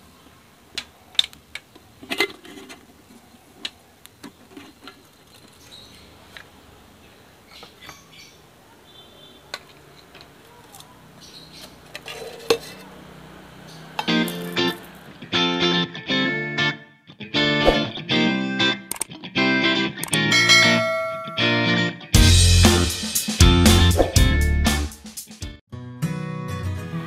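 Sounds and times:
metal cook pots clinking: 11.9 - 12.9.

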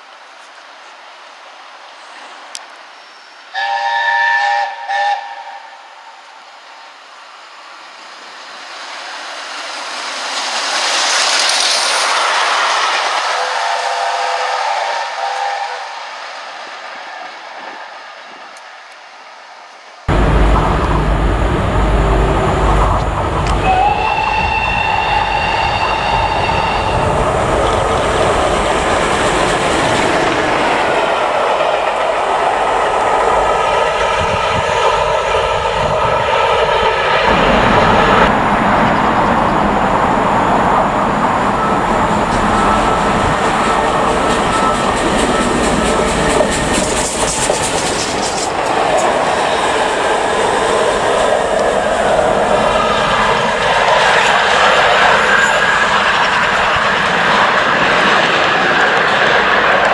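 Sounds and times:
steam locomotive whistle: 3.5 - 6.2, 13.2 - 16.2, 23.4 - 28.0, 41.5 - 46.5
steam locomotive running: 3.5 - 18.5, 20.1 - 59.9
train rumble with wheel clatter: 3.6 - 19.0, 20.0 - 59.9.

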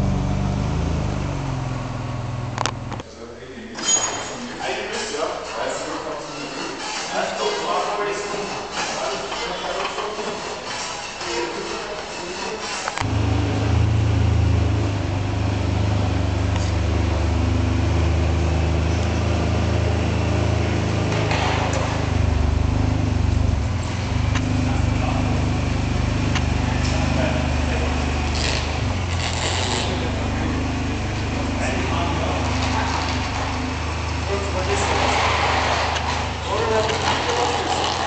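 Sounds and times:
car engine starting and idling: 0.0 - 3.1, 12.9 - 38.0.

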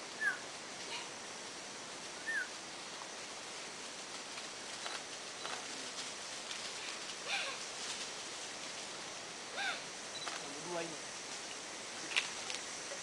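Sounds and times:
forest background hiss: 0.0 - 13.0
high chirping animal calls: 0.2 - 1.1, 2.2 - 2.5, 9.5 - 9.9.

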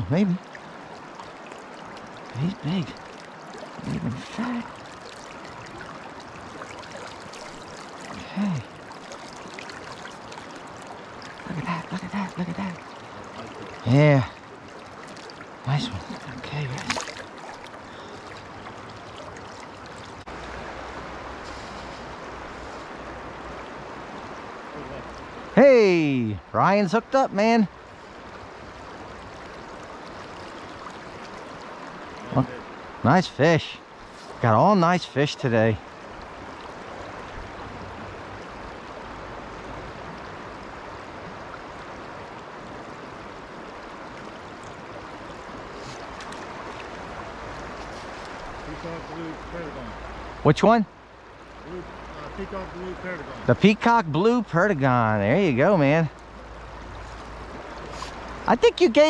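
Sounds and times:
river current rushing: 0.0 - 59.0.

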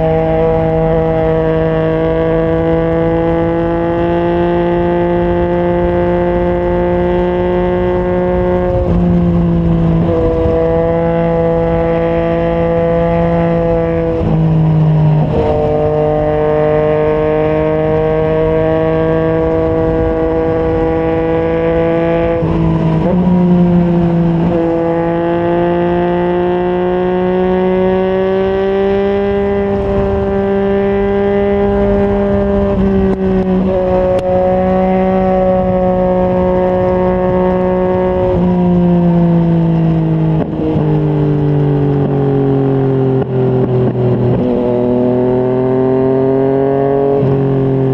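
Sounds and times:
motorcycle engine at speed: 0.0 - 47.9
wind noise: 0.0 - 47.9.

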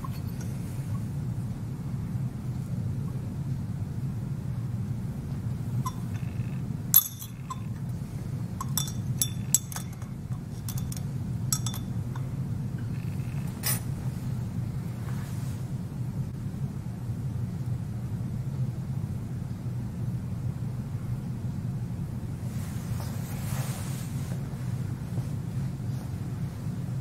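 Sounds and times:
steady low hum: 0.0 - 27.0
metal clinking against glass: 5.8 - 6.3, 7.0 - 7.8, 8.6 - 12.3.

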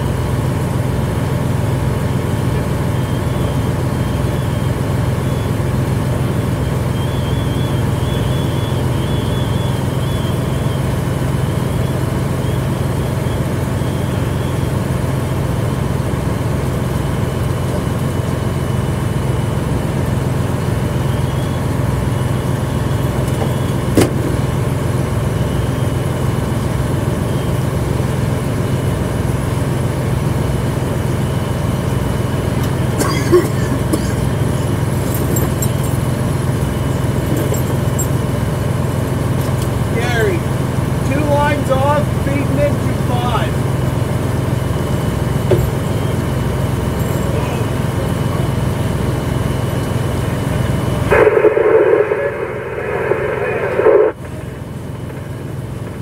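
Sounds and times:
fire engine humming: 0.0 - 56.0.

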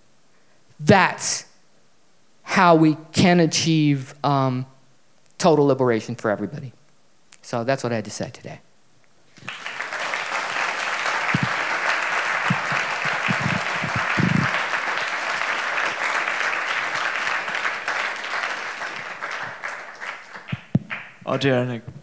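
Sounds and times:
audience applauding: 9.4 - 21.5.

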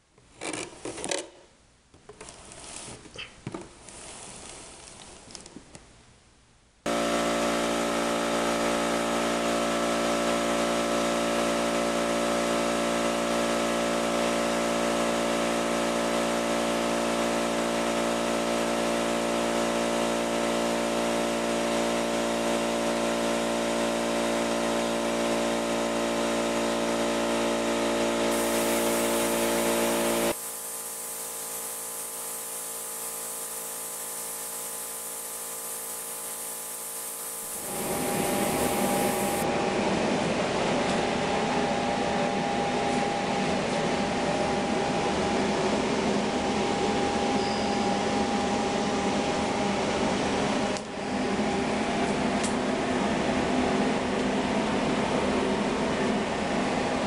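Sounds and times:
electric motor hum with hiss: 28.1 - 39.4.

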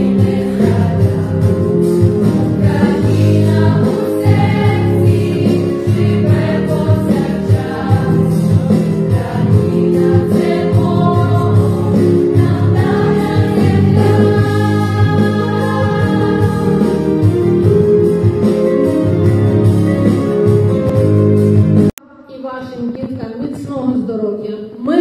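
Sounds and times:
girls singing together: 2.6 - 17.2.

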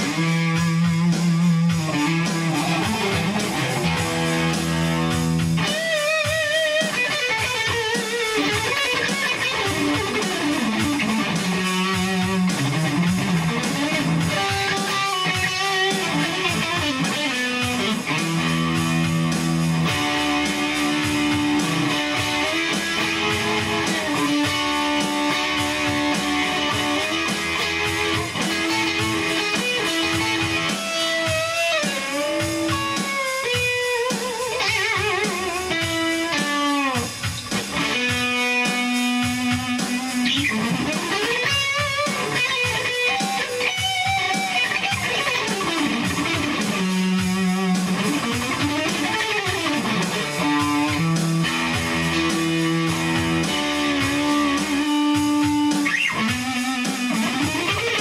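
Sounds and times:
guitar-led instrumental music: 0.0 - 58.0.

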